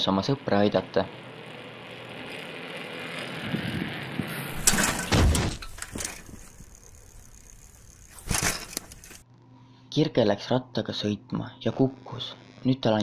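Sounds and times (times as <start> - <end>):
bicycle rolling on asphalt: 0.0 - 9.2
bicycle crashing onto asphalt: 2.2 - 9.2.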